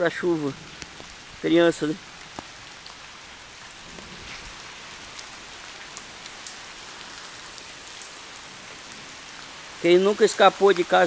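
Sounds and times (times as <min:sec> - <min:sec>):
steady rain hiss: 0:00.0 - 0:11.0.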